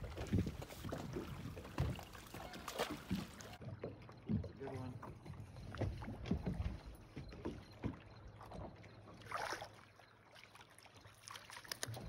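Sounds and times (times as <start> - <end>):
water lapping against boat hull: 0.0 - 12.0
small clicks: 11.5 - 12.0.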